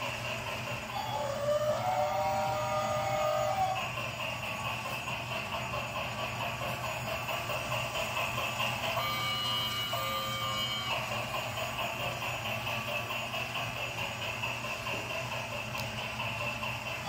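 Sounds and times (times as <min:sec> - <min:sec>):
toy train motor whirring: 0:00.0 - 0:17.0
clear held tones: 0:09.0 - 0:11.2.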